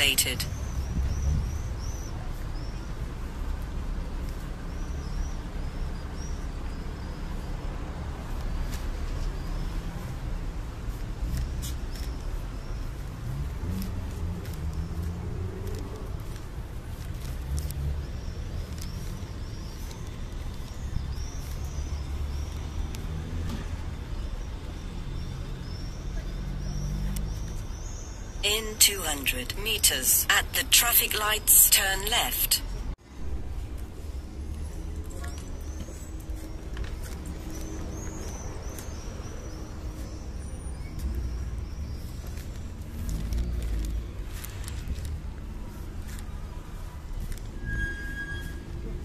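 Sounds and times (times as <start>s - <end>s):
low street rumble: 0.0s - 49.0s
small birds chirping: 0.4s - 7.7s, 11.6s - 23.4s, 34.7s - 44.6s.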